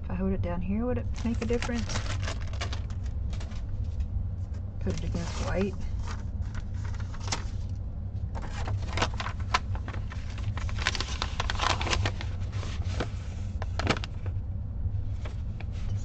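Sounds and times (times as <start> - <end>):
low steady hum: 0.0 - 16.0
thread bundle rustling and crinkling: 1.0 - 4.1, 4.8 - 7.6, 8.3 - 14.3.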